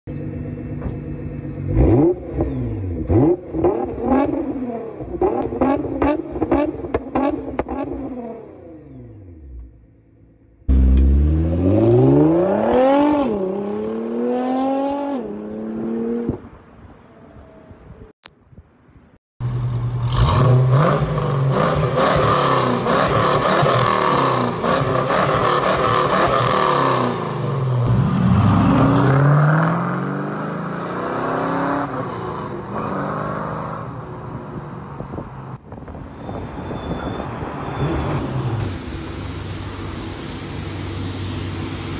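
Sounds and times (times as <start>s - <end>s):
car engine revving: 1.3s - 9.7s, 10.7s - 16.4s.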